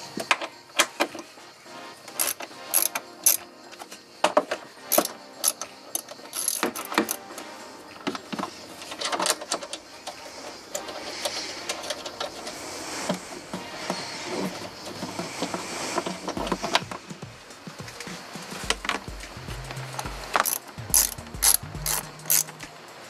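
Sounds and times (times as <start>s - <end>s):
socket ratchet clicking: 2.1s - 3.4s, 4.9s - 7.2s, 20.0s - 22.6s.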